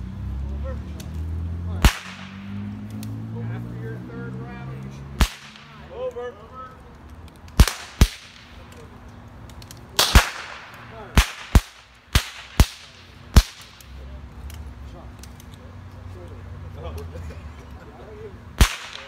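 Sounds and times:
rifle shots cracking: 1.8s - 2.6s, 5.2s - 5.8s, 7.6s - 8.6s, 10.0s - 13.9s, 18.6s - 19.0s.

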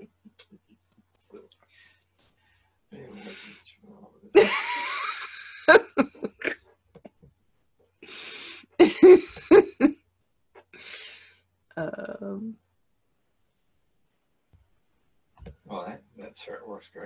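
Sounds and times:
woman laughing: 4.4s - 6.6s, 8.8s - 10.0s.

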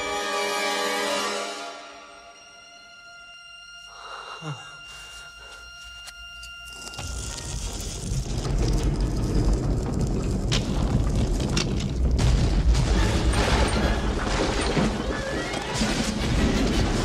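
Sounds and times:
deep continuous rumbling: 7.1s - 17.0s.

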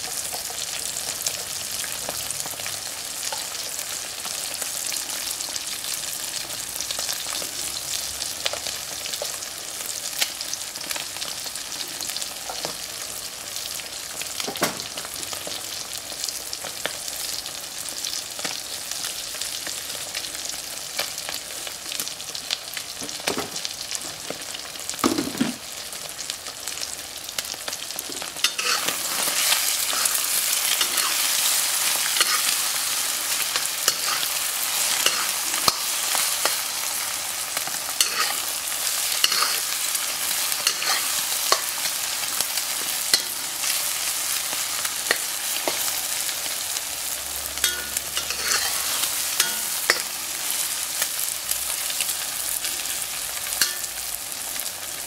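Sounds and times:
food sizzling in a wok: 0.0s - 55.0s
metal spatula scraping a wok: 28.4s - 36.8s, 38.0s - 41.8s, 47.6s - 50.6s.

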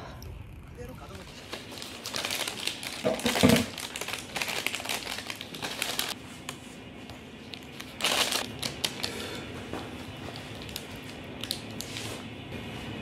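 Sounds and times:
faint steady hum: 0.0s - 13.0s
plastic packaging crinkling: 1.2s - 6.6s, 7.5s - 9.4s, 10.2s - 12.2s.

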